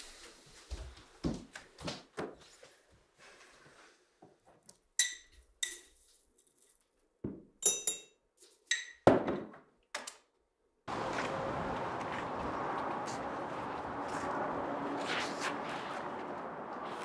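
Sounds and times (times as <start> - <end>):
glass and ceramic clinking: 7.6 - 9.0
steady rushing noise: 10.9 - 17.0.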